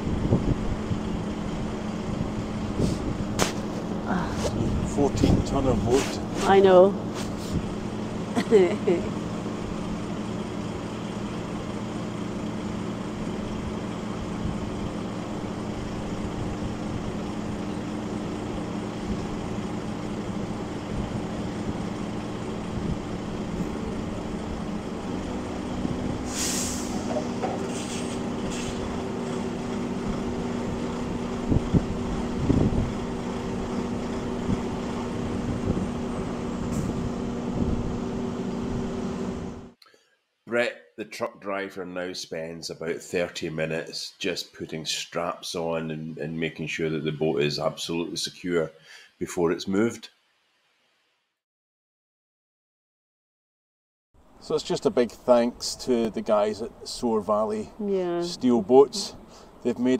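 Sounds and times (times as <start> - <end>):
diesel engine idling: 0.0 - 39.8, 54.2 - 59.9
compressed air hissing: 2.7 - 6.4, 26.2 - 28.8.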